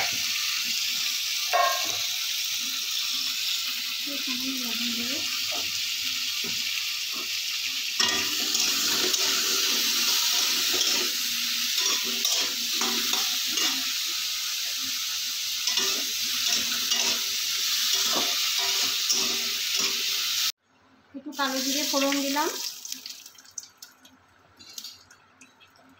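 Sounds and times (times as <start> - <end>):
potatoes sizzling in hot oil: 0.0 - 20.6, 21.3 - 22.8
metal spatula scraping a pan: 8.0 - 13.9, 15.6 - 20.1.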